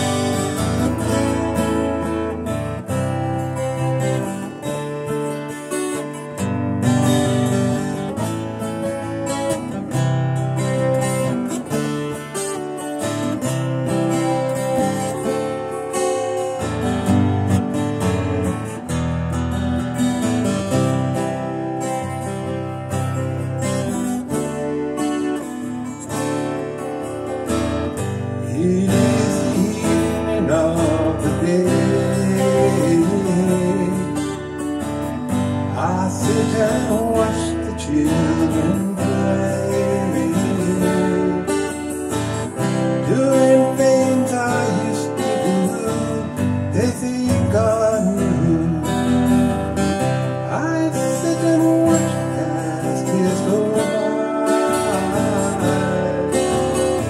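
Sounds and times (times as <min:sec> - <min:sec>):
strummed acoustic guitar: 0:00.0 - 0:57.0
man singing: 0:28.3 - 0:34.8, 0:35.6 - 0:57.0.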